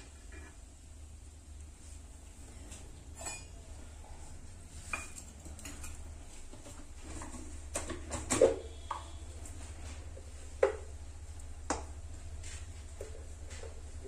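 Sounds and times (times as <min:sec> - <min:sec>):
steady low hum: 0:00.0 - 0:14.0
steel utensils clinking: 0:03.1 - 0:03.7.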